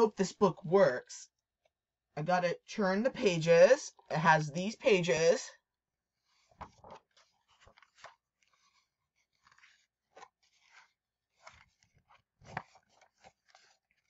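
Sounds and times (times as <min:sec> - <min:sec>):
book pages rustling: 0:06.2 - 0:14.0.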